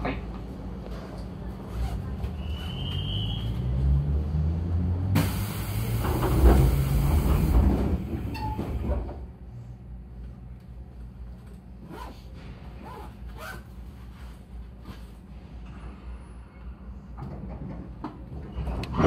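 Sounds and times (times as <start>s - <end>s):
train steady hum: 0.0s - 3.6s, 5.2s - 19.0s
loud hiss of air: 5.2s - 7.9s.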